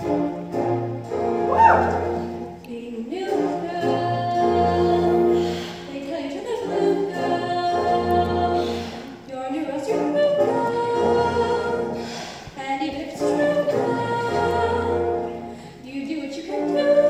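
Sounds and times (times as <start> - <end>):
instrumental accompaniment with bass: 0.0 - 5.7
choir holding notes: 0.0 - 12.3, 12.9 - 17.0.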